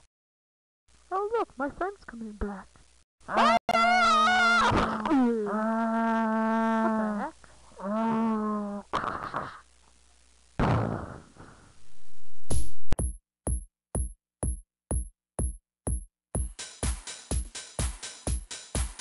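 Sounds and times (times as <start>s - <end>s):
animal-like cry: 3.3s - 8.9s.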